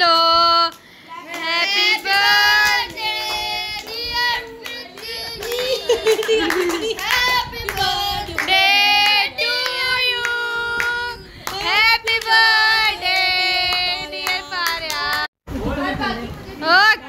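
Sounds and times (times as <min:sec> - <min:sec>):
hands clapping: 0:02.1 - 0:09.2.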